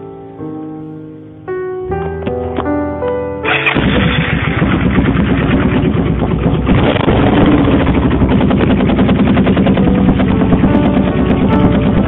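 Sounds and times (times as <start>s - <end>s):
motorcycle engine running: 3.5s - 12.0s.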